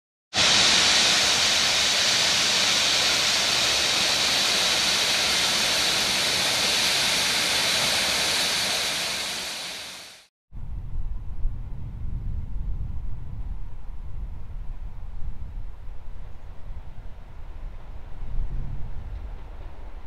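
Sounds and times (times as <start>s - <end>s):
steam locomotive hissing steam: 0.4s - 10.3s.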